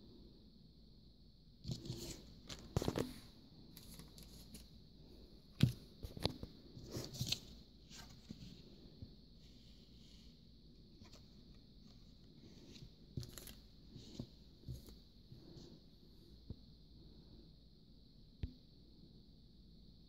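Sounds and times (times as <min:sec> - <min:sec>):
paper rustling: 0:01.7 - 0:04.7, 0:11.0 - 0:15.0.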